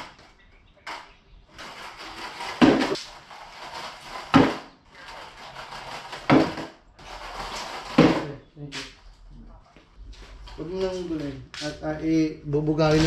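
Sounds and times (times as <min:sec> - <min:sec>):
sharp wooden knocks: 0:02.0 - 0:03.0, 0:04.1 - 0:06.8, 0:07.7 - 0:08.3.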